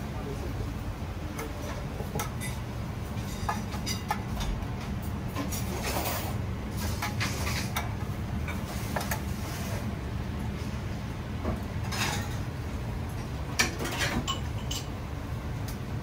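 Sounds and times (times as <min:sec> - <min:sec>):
low machine hum: 0:00.0 - 0:16.0
utensils scraping a plate: 0:05.4 - 0:07.9.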